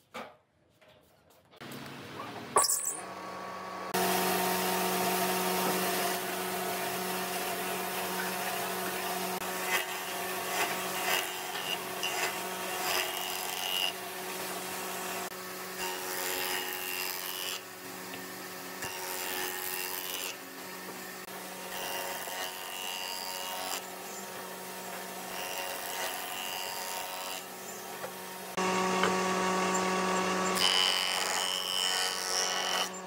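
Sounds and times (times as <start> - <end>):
wood lathe motor hum: 3.1 - 33.0
turning tool scraping wood: 8.2 - 15.3.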